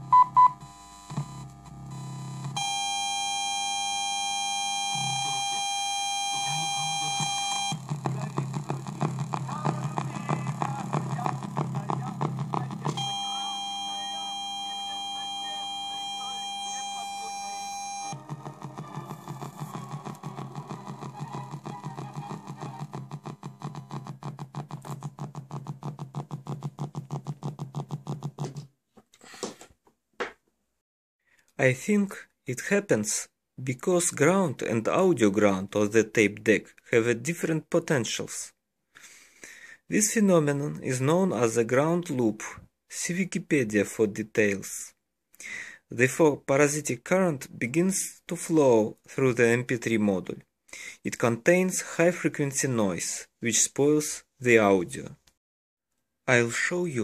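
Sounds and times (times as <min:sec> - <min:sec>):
high-pitched electronic whine: 0:12.8 - 0:26.7
short beeps: 0:12.9 - 0:18.2.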